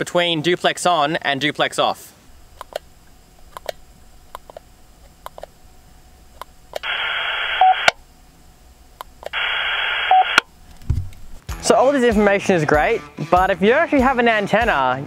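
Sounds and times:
radio static bursts: 0:06.8 - 0:08.0, 0:09.3 - 0:10.5
short radio beep: 0:06.9 - 0:08.0, 0:09.4 - 0:10.4.

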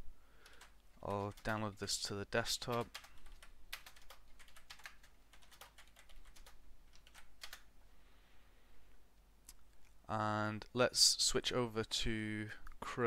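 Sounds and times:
typing on computer keyboard: 0:00.4 - 0:01.6, 0:02.6 - 0:07.7.

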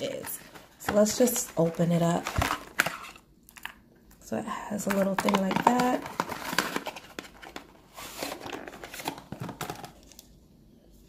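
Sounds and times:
cardboard carton rustling and scraping: 0:05.8 - 0:09.8.

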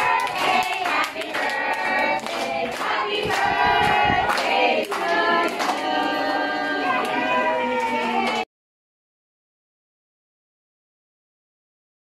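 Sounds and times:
hands clapping: 0:00.0 - 0:06.2
children singing: 0:00.0 - 0:08.5.

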